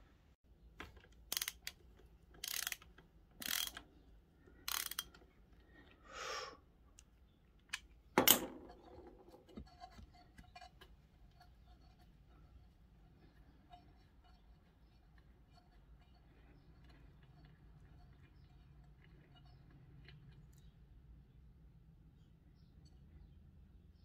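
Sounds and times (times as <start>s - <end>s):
socket ratchet clicking: 1.1s - 3.9s, 4.6s - 5.2s.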